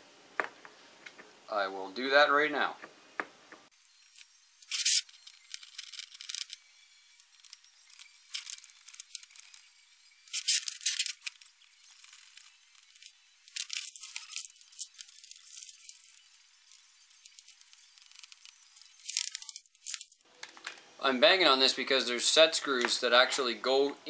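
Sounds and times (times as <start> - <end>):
plastic parts clicking and rattling: 4.1 - 20.9.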